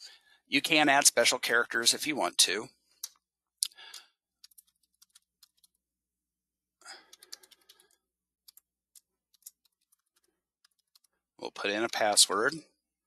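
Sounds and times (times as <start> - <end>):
computer keyboard typing: 3.8 - 5.8, 6.9 - 12.1.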